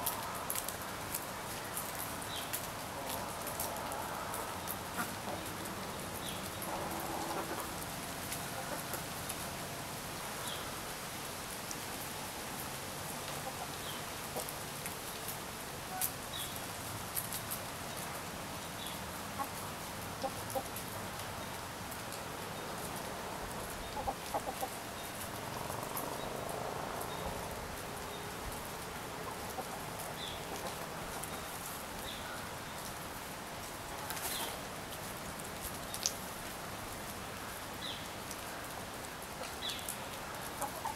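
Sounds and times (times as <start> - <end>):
hens clucking softly: 40.5 - 40.9.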